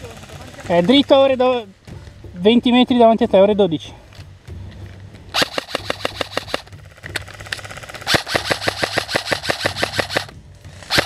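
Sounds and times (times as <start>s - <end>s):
airsoft rifle firing bursts: 5.4s - 11.0s.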